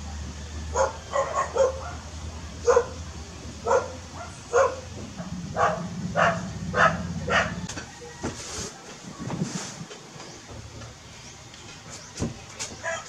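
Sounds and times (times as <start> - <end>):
dog barking: 0.7 - 3.0, 3.6 - 7.7.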